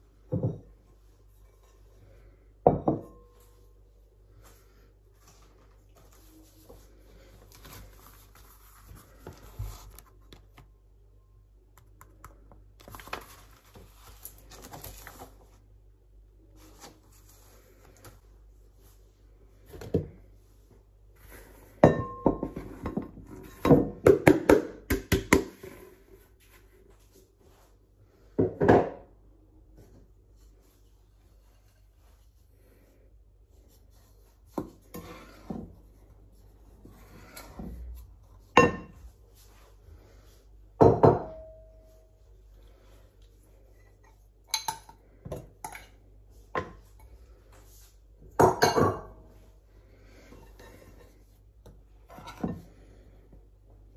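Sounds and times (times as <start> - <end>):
book pages rustling: 5.2 - 10.7, 12.8 - 15.7.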